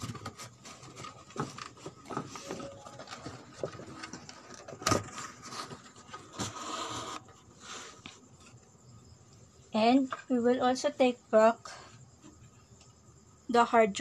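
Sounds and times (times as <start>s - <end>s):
cardboard knocks and rustling: 0.0s - 6.0s.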